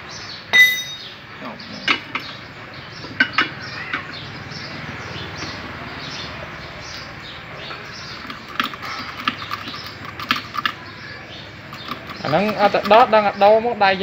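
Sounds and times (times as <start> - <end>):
small birds chirping: 0.0 - 14.0
metal clicks and knocks: 8.2 - 10.8, 11.7 - 13.2.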